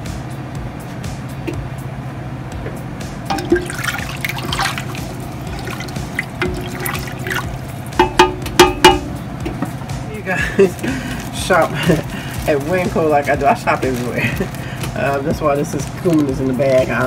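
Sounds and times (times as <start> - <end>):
liquid sloshing and splashing: 3.3 - 8.1.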